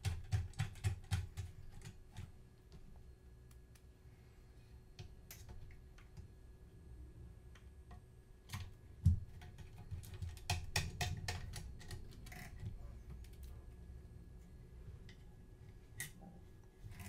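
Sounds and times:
plastic parts clicking and tapping: 0:00.0 - 0:02.8, 0:07.6 - 0:13.5.

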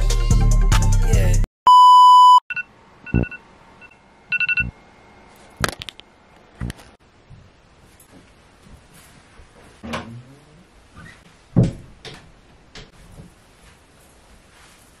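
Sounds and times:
music: 0:00.0 - 0:01.4
smartphone alarm beeps: 0:01.7 - 0:04.7
loud steady beep: 0:01.7 - 0:04.8.

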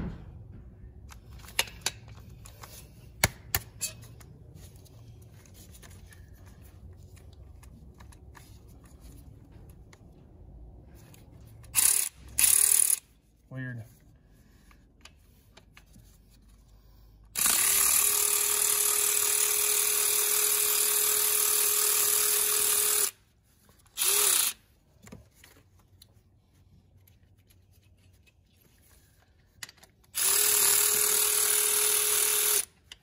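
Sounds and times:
cordless ratchet motor whirring: 0:11.7 - 0:13.1, 0:17.3 - 0:23.2, 0:24.0 - 0:24.6, 0:30.1 - 0:32.8.

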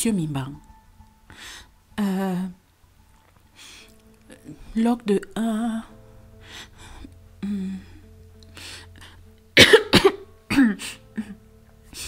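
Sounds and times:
soft background music: 0:00.0 - 0:12.0
person coughing: 0:09.6 - 0:11.3.

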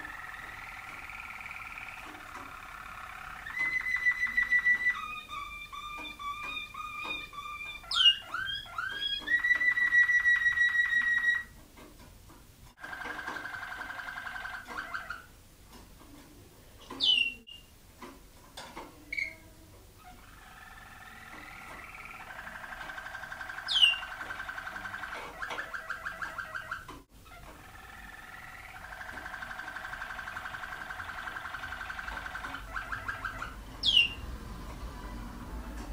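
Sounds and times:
canary rolling song: 0:00.0 - 0:11.9, 0:12.7 - 0:35.9.

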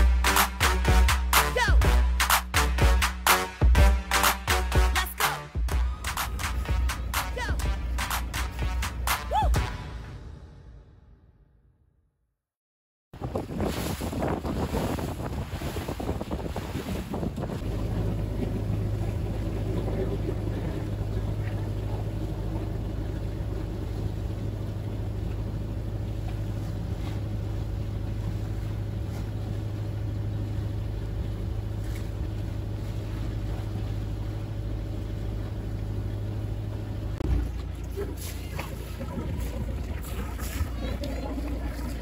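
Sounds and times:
motorboat engine droning: 0:00.0 - 0:10.0, 0:14.5 - 0:42.0
wind noise: 0:13.2 - 0:20.9
rushing water: 0:13.2 - 0:42.0.

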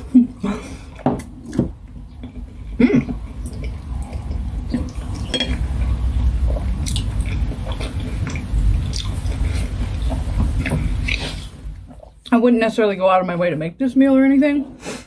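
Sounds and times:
person chewing: 0:00.4 - 0:12.3.

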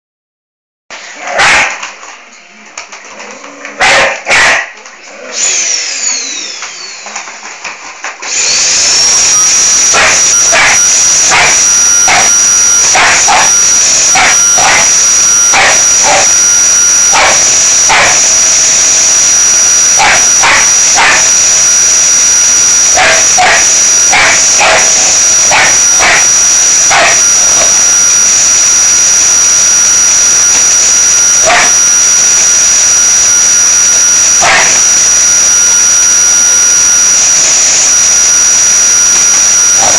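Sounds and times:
dog barking: 0:01.3 - 0:01.8, 0:03.8 - 0:04.8, 0:09.9 - 0:12.3, 0:12.9 - 0:16.3, 0:17.1 - 0:18.3, 0:20.0 - 0:21.3, 0:23.0 - 0:26.3, 0:26.9 - 0:27.7, 0:31.4 - 0:31.8, 0:34.4 - 0:34.8
loud motor whining: 0:05.4 - 0:07.0, 0:08.3 - 0:39.9.

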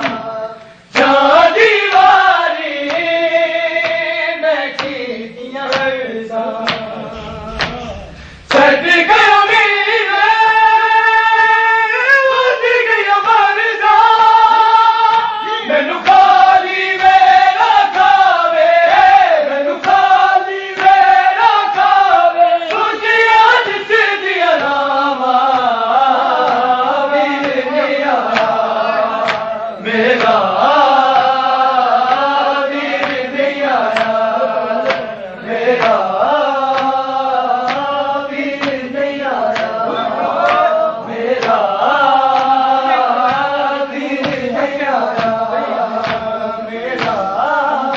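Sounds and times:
men chanting lament: 0:00.0 - 0:47.9
sharp repeated beats: 0:06.6 - 0:09.9.

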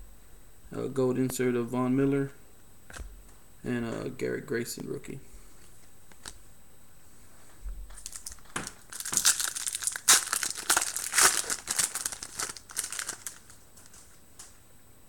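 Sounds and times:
foil wrapper crinkling: 0:06.1 - 0:06.4, 0:07.9 - 0:14.2.

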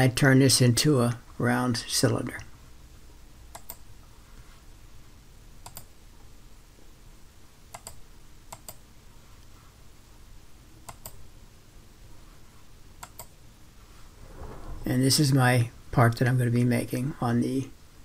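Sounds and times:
faint steady hum: 0:00.0 - 0:18.0
computer mouse clicking: 0:03.5 - 0:03.8, 0:05.6 - 0:05.9, 0:07.7 - 0:08.8, 0:10.8 - 0:11.2, 0:13.0 - 0:13.3.

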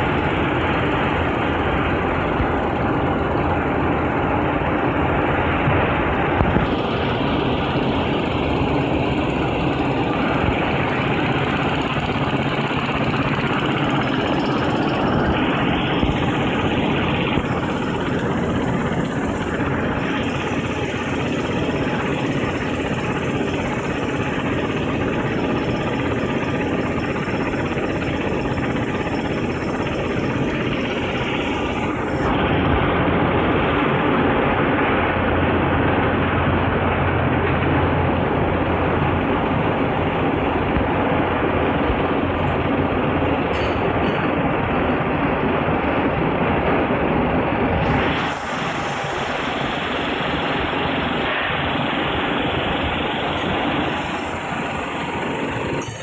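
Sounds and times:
production line machine drone: 0:00.0 - 0:56.0.

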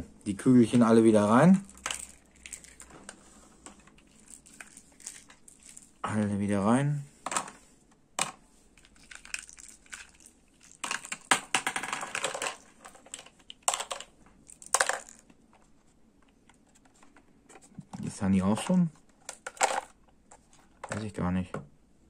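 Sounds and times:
plastic balls clicking in plastic chamber: 0:01.5 - 0:06.0, 0:08.2 - 0:15.4.

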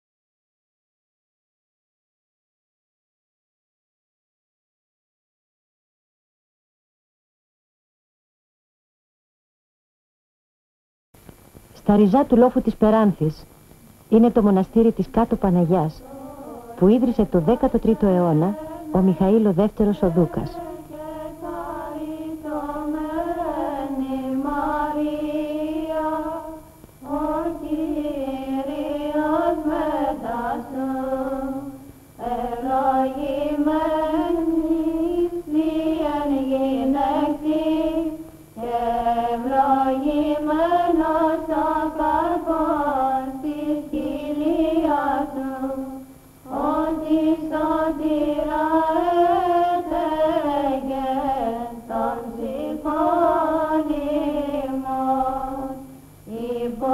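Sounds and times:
women chanting a hymn: 0:14.1 - 0:56.9.

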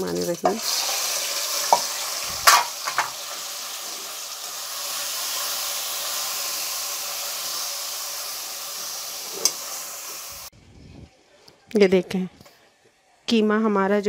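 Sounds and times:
meat sizzling in oil: 0:00.0 - 0:10.5.

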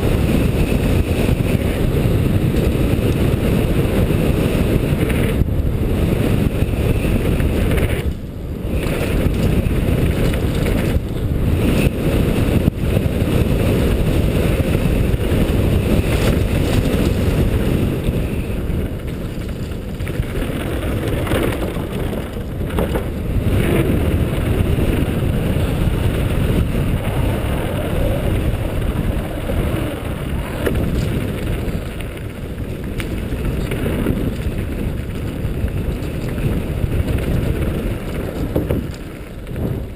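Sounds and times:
bike rattling over bumps: 0:00.0 - 0:39.9
wind buffeting microphone: 0:00.0 - 0:39.9
tyres rumbling over gravel: 0:13.3 - 0:39.9.

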